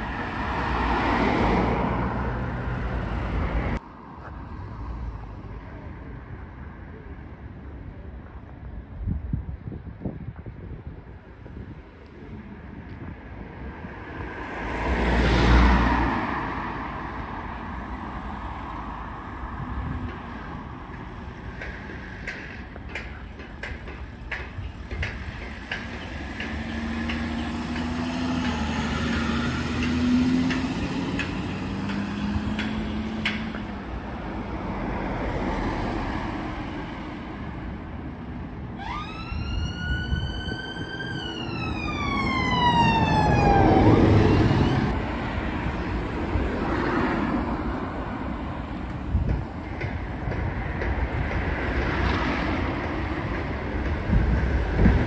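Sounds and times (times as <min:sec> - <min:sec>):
vehicle engines running: 0:19.1 - 0:34.2
emergency siren wail: 0:38.7 - 0:45.0.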